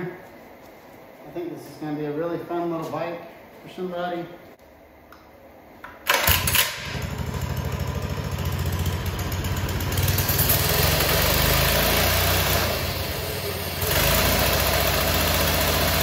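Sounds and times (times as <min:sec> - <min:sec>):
minibike engine idling: 0:06.8 - 0:16.0.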